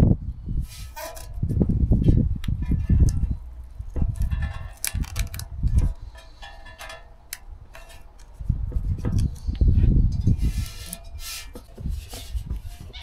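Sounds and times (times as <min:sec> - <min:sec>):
tape crinkling: 0:02.4 - 0:06.1
hands rubbing on metal tank: 0:08.7 - 0:13.0.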